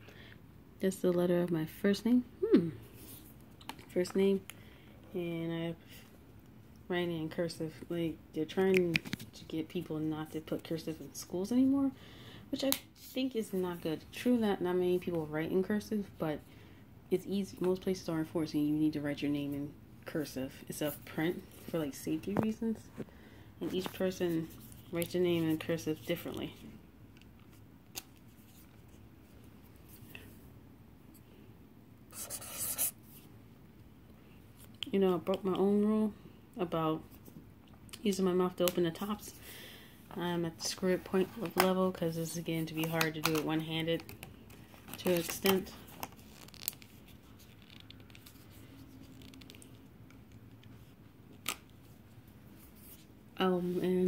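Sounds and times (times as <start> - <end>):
marker scratching on paper: 32.1 - 33.0
brush pens and paper handling: 40.6 - 51.5.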